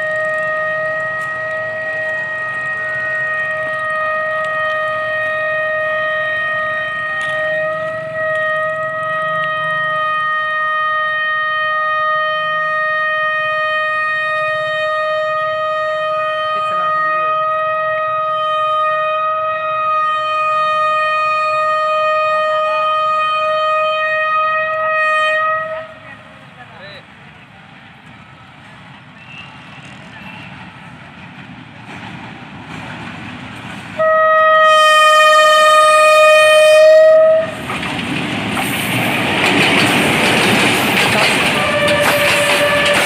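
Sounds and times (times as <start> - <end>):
locomotive air horn blast: 0.0 - 26.4, 34.0 - 37.7, 41.0 - 43.0.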